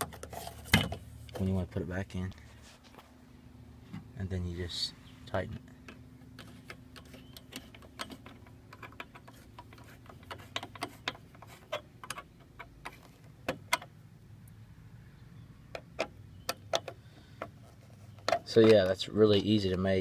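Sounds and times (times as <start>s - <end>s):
screwdriver turning hose clamp screw: 6.4s - 13.9s.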